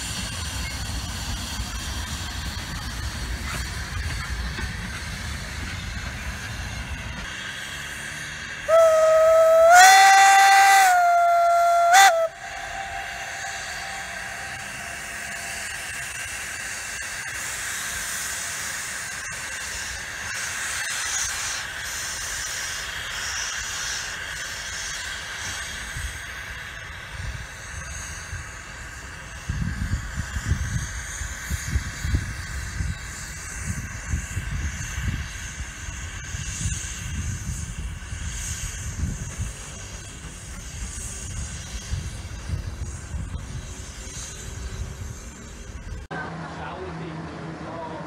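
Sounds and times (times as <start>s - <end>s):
steam hissing: 0.0s - 46.1s
steam locomotive whistle: 8.6s - 26.9s
low rumble: 11.5s - 17.6s.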